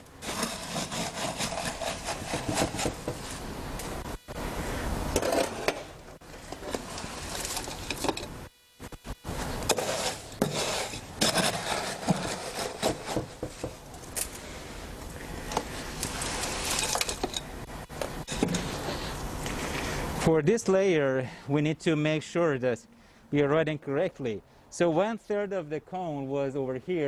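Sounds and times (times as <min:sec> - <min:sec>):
scoop scraping wet concrete: 0:00.1 - 0:03.4, 0:05.1 - 0:08.0, 0:09.3 - 0:13.2, 0:15.6 - 0:17.4.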